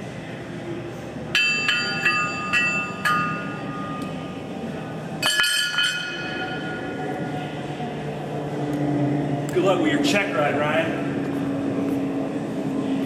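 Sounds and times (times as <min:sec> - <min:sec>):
steady low hum: 0:00.0 - 0:13.0
metallic clinks and clanks: 0:01.4 - 0:04.1, 0:05.2 - 0:06.9.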